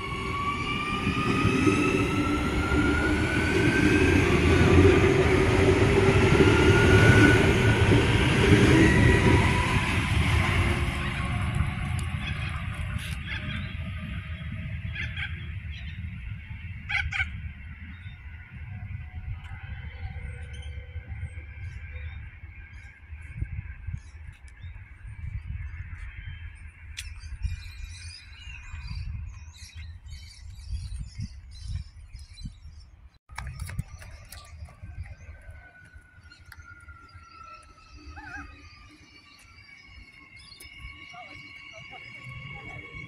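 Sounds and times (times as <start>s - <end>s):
electric train whine: 0.0s - 29.3s, 34.8s - 43.0s
gusty low rumble: 0.0s - 37.3s
birds chirping: 10.4s - 43.0s.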